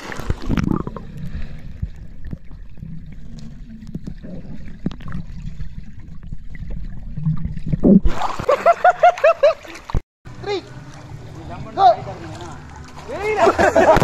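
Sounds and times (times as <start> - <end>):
water splashing: 0.0 - 14.0
muffled underwater rumble and bubbling: 0.4 - 8.0.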